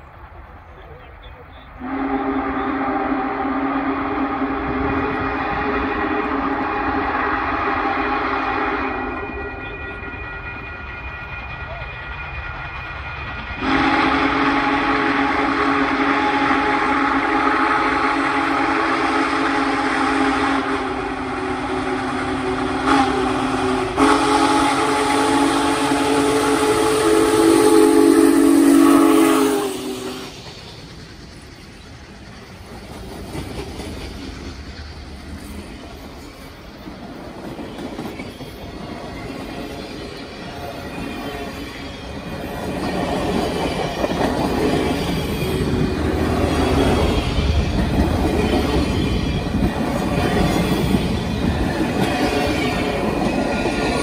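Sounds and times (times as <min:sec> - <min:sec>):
train wheels rumbling on rails: 0:00.0 - 0:54.0
steam locomotive whistle: 0:01.5 - 0:30.4.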